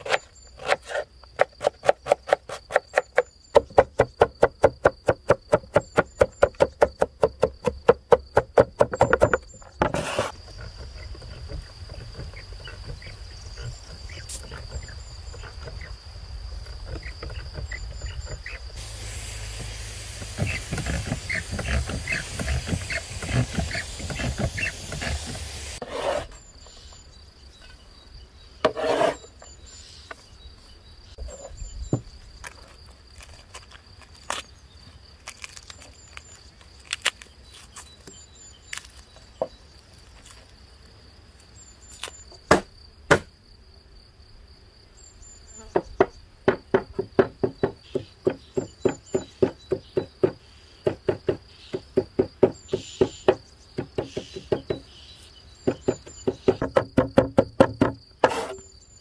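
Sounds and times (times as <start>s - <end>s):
cleaver chopping on wooden board: 0.0s - 10.3s, 42.5s - 43.3s, 45.8s - 54.8s, 55.7s - 58.6s
insects droning: 0.0s - 59.0s.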